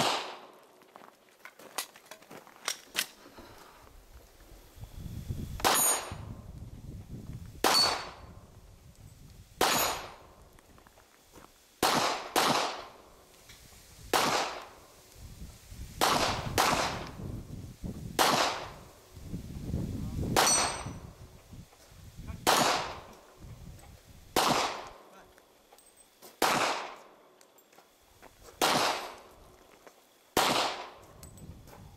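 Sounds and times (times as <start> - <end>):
handgun shots: 0.0 - 0.5, 7.6 - 8.2, 9.6 - 10.2, 11.8 - 12.9, 14.2 - 14.7, 20.4 - 20.9, 22.4 - 23.1, 24.4 - 25.0, 26.4 - 27.0, 28.6 - 29.3, 30.4 - 31.0
steel target plates ringing: 5.6 - 6.2, 20.4 - 21.0.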